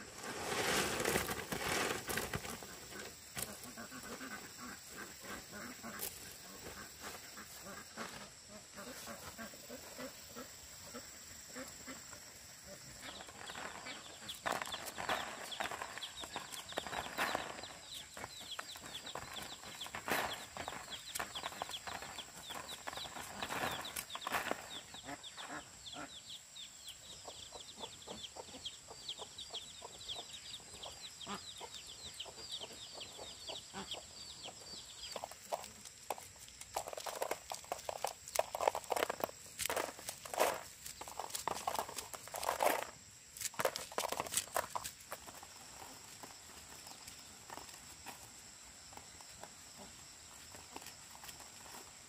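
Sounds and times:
chickens clucking: 27.1 - 35.7.

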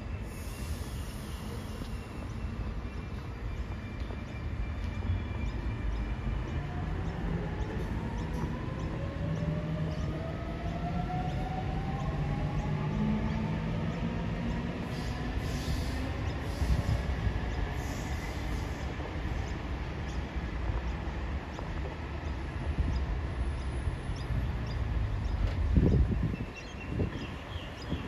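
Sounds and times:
train rumbling on rails: 0.0 - 28.0.

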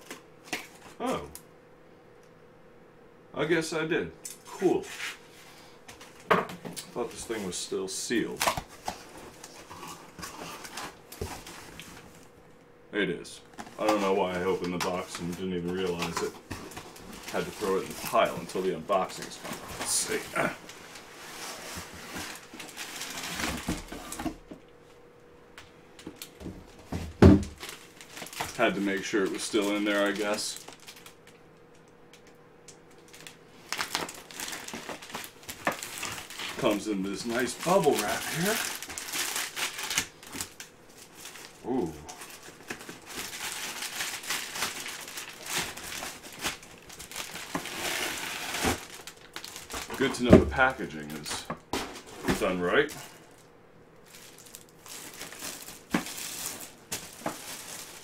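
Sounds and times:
plastic packaging crinkling: 7.0 - 12.3, 13.5 - 24.3, 27.4 - 58.0
cardboard rustling and scraping: 8.5 - 12.2, 13.6 - 24.4, 42.2 - 53.2, 54.1 - 58.0.

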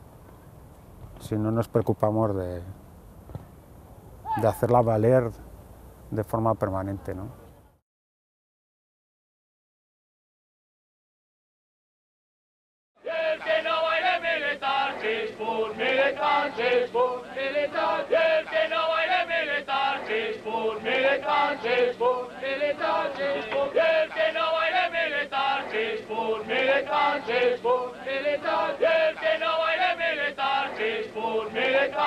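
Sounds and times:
group chanting in unison: 13.0 - 32.0.

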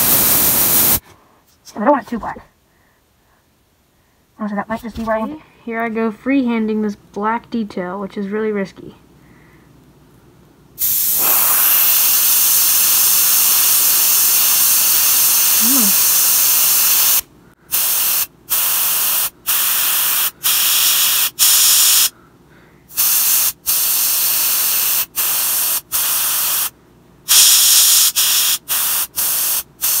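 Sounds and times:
airbrush spraying hiss: 0.0 - 1.0, 10.8 - 22.1, 22.9 - 26.7, 27.3 - 30.0.

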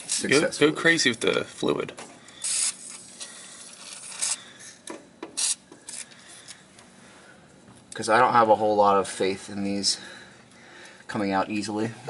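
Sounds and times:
aerosol can spraying: 5.4 - 5.6.

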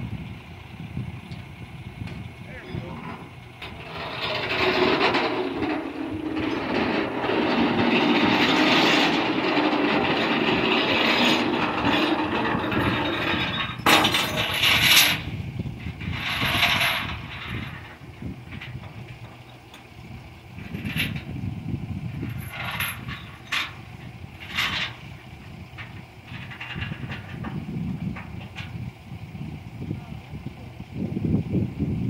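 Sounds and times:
truck winch rattling and grinding: 0.1 - 32.0
sharp metallic clatters: 2.8 - 19.9, 22.2 - 28.8.

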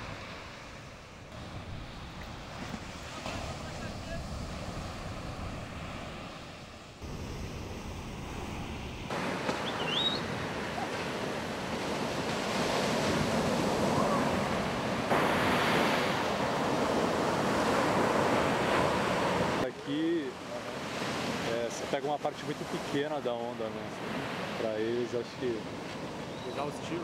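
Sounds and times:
wind on microphone: 0.0 - 19.6
ocean waves breaking: 0.0 - 27.0.

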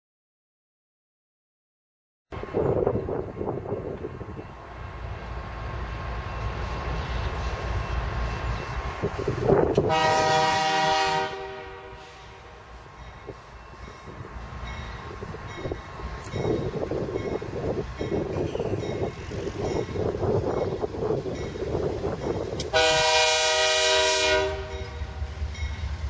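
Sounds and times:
diesel locomotive engines rumbling: 2.4 - 26.0
train horn blast: 9.8 - 12.7, 22.6 - 25.3.

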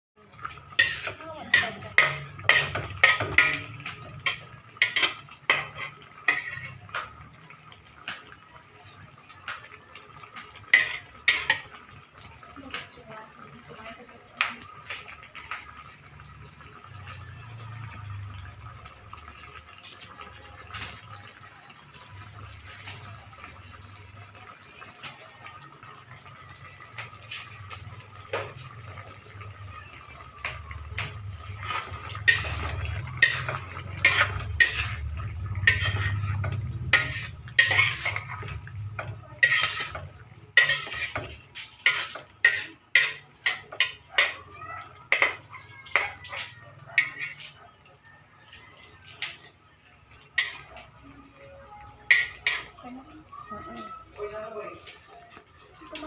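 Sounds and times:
spatula scraping a metal wok: 0.6 - 6.9, 10.7 - 11.7, 19.8 - 25.6, 31.5 - 44.4, 45.1 - 47.6, 50.3 - 50.8, 52.1 - 52.8.

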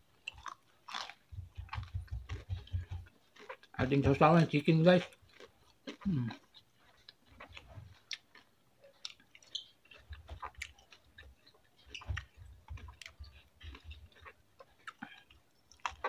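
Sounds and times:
person chewing: 0.1 - 16.0
soft low thuds: 1.3 - 3.1.

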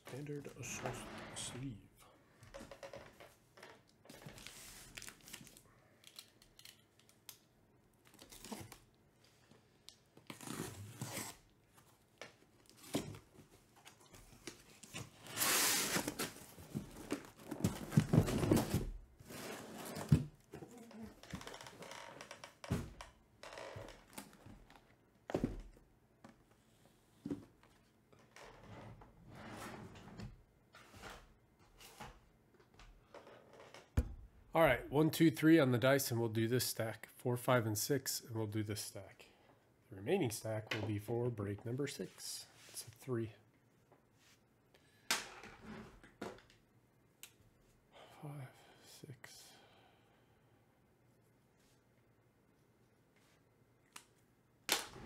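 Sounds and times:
tape and cardboard tearing: 8.0 - 8.9, 10.2 - 11.5, 15.2 - 16.4.

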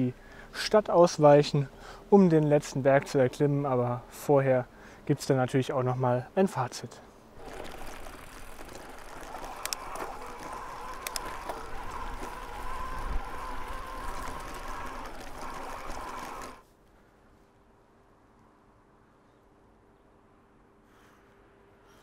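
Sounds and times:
faint outdoor background: 0.0 - 22.0
sharp clicks: 7.4 - 16.6
bike riding rushing noise: 7.4 - 16.7.

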